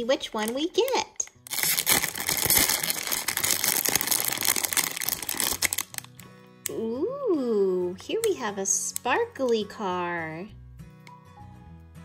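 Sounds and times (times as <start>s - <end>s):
plastic packet tearing and crinkling: 1.4s - 6.3s.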